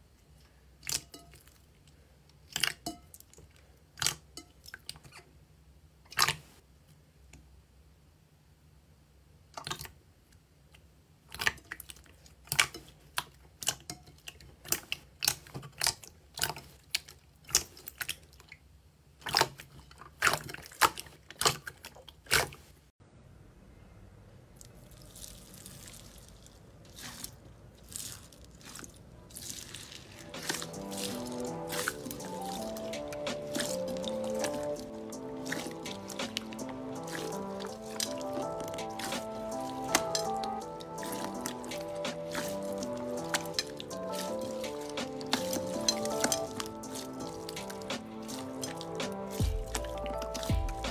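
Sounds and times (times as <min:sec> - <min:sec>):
slime crackling: 0:24.6 - 0:50.9.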